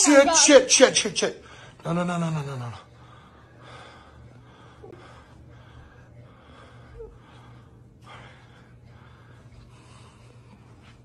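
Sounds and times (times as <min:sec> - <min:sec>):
faint low hum: 0:00.0 - 0:11.0
person breathing hard: 0:02.9 - 0:11.0.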